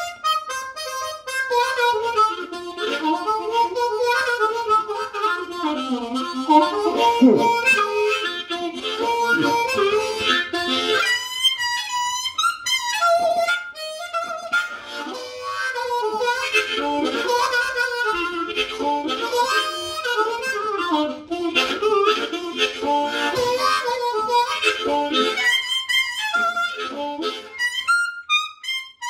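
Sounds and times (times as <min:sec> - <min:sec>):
solo blues harmonica: 0:00.0 - 0:29.0.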